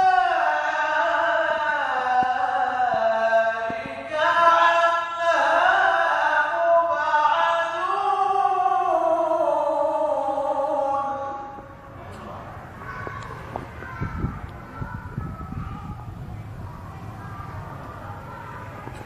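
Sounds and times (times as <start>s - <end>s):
man reciting melodically into microphone: 0.0s - 12.4s.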